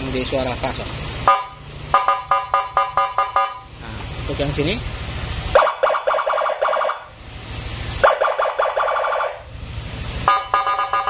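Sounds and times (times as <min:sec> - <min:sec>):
pulsing electronic siren: 0:01.3 - 0:03.7, 0:05.5 - 0:07.1, 0:08.0 - 0:09.5, 0:10.2 - 0:11.0.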